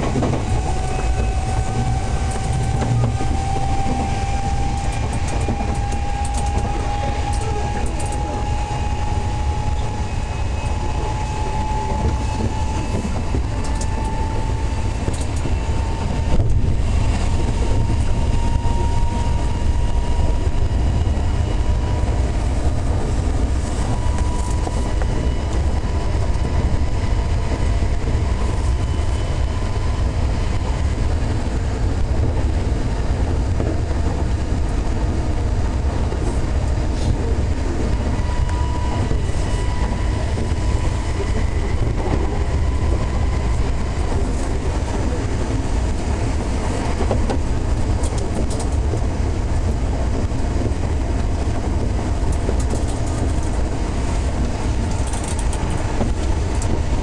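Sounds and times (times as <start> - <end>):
faint whining tones: 0.0 - 31.2, 35.4 - 49.6
rumble of wheels on rail: 0.0 - 57.0.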